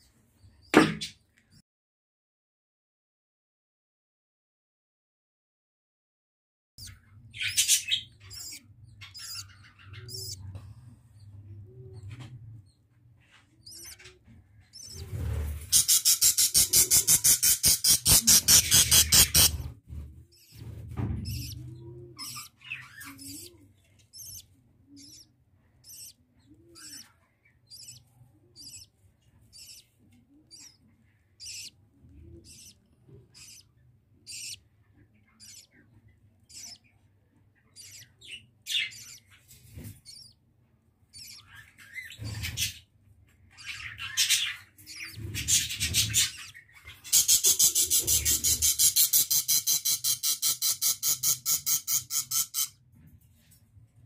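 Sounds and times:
budgerigars chirping: 0:06.8 - 0:10.5, 0:13.6 - 0:40.4, 0:41.1 - 0:42.9, 0:43.5 - 0:52.8
harsh rattling bird noise: 0:14.8 - 0:19.7, 0:44.2 - 0:52.8.

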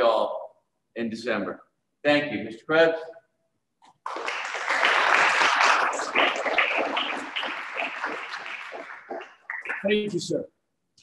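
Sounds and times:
group of people applauding: 0:04.0 - 0:10.2.

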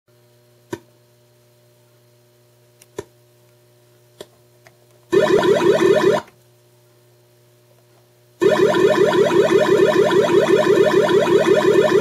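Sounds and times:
speaker hum: 0:05.1 - 0:06.4, 0:08.4 - 0:12.0.

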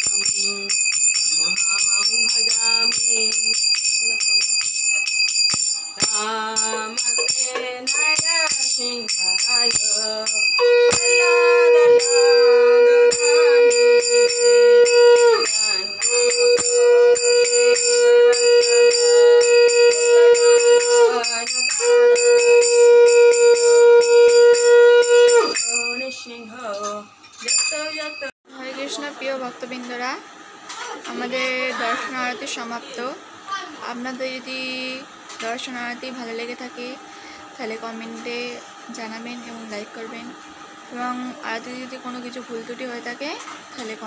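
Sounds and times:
hand bell ringing: 0:00.0 - 0:28.3
conch shell blasts: 0:09.4 - 0:25.9.

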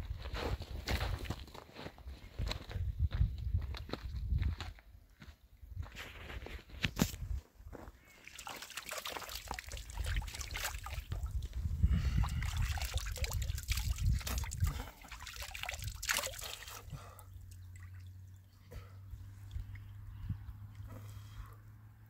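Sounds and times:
water trickling and splashing: 0:08.0 - 0:21.4.

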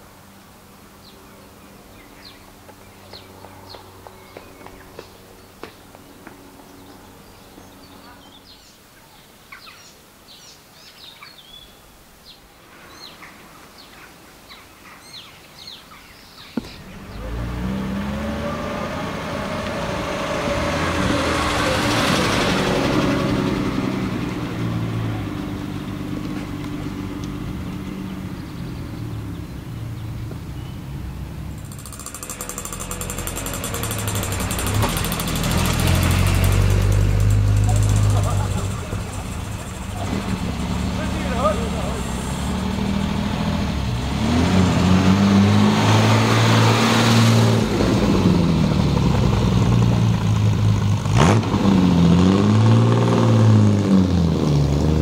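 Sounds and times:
birds chirping: 0:00.2 - 0:21.4, 0:23.7 - 0:44.4
sports car driving past: 0:16.6 - 0:55.0.

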